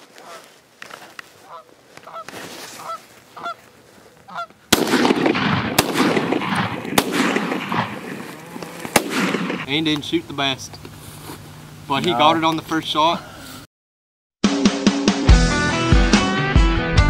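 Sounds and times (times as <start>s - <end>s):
geese honking: 0.2s - 0.5s, 1.4s - 4.6s, 6.6s - 9.0s
shotgun shots: 4.7s - 9.8s.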